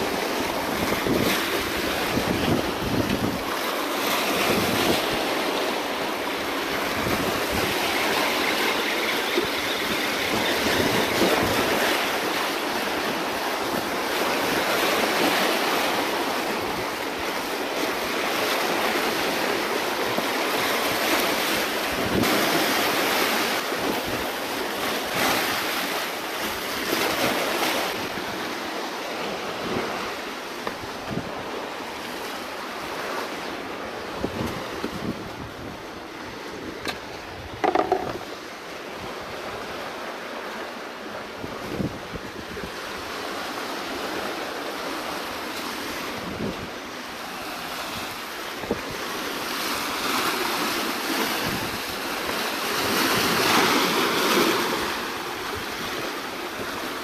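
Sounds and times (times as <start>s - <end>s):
wind buffeting microphone: 0.0s - 17.0s, 32.9s - 39.9s, 41.2s - 44.4s
waves splashing against rocks: 0.0s - 57.0s.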